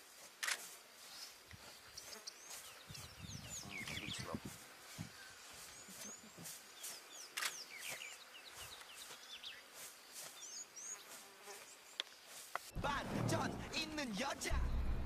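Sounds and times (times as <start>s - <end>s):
insects buzzing: 0.0s - 12.8s
brief crackles: 0.4s - 0.7s, 7.3s - 8.1s
small birds chirping: 1.0s - 12.7s.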